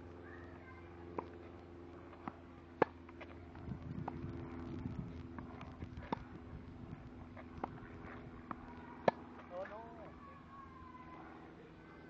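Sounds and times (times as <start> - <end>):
tennis ball bouncing on court: 2.1 - 3.3, 5.4 - 6.3, 7.4 - 9.8
racket striking tennis ball: 7.6 - 9.5.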